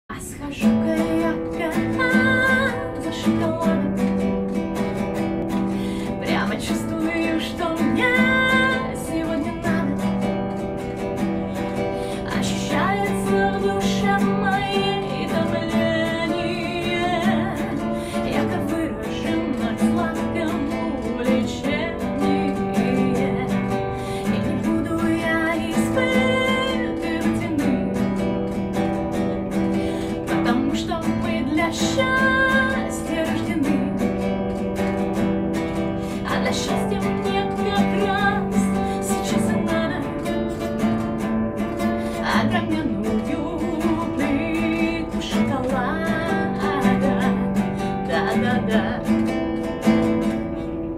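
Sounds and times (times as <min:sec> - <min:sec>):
woman singing: 0:00.0 - 0:50.9
strummed classical guitar: 0:00.1 - 0:50.9.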